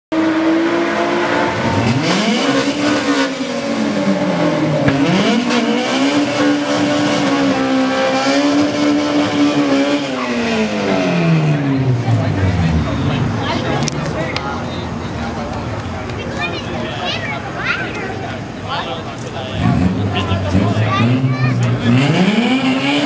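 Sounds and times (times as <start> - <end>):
car engine revving: 0.1 - 23.0.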